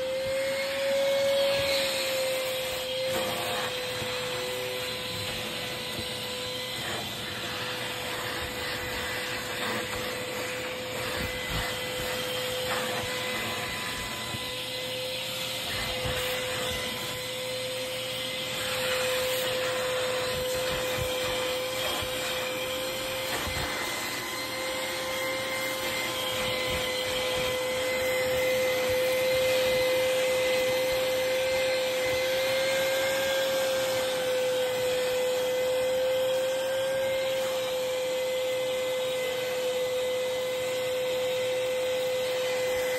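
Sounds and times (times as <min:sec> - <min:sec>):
vacuum cleaner whining: 0:00.0 - 0:42.9.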